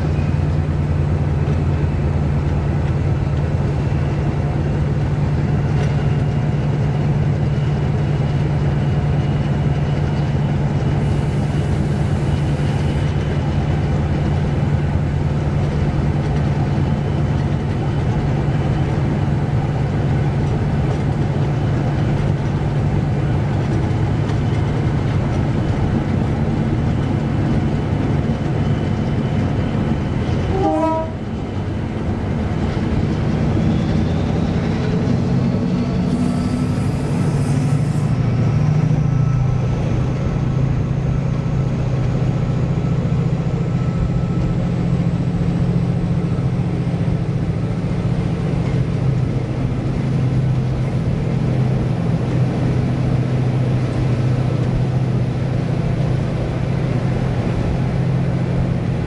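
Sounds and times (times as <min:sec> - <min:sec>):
diesel locomotive running: 0:00.0 - 0:59.0
train running noise: 0:00.0 - 0:59.0.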